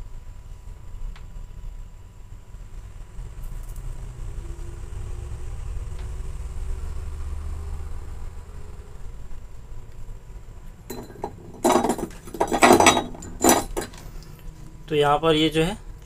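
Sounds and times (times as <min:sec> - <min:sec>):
small metal tools clinking: 0:10.9 - 0:14.2.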